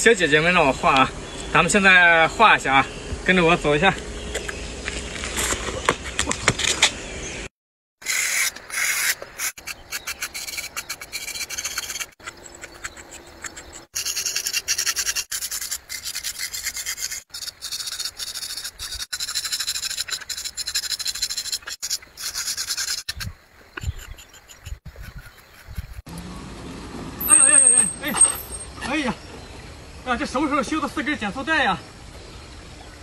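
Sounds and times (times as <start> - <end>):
hand scratching on concrete: 8.1 - 23.2.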